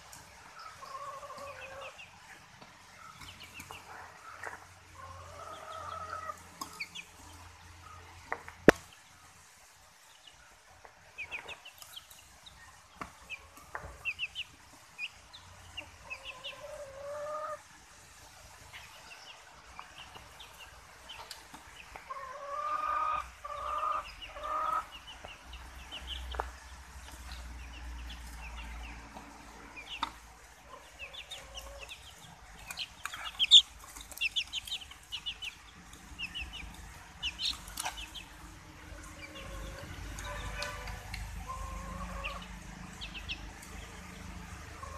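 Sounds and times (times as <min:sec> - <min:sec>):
chicks peeping: 0:00.0 - 0:09.3, 0:10.0 - 0:44.9
hen clucking: 0:00.5 - 0:02.4, 0:03.1 - 0:07.2, 0:13.0 - 0:17.6, 0:19.8 - 0:44.9.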